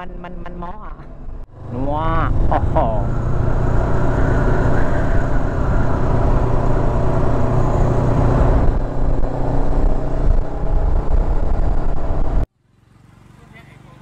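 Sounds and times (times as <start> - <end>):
wind and road noise: 0.0 - 14.0.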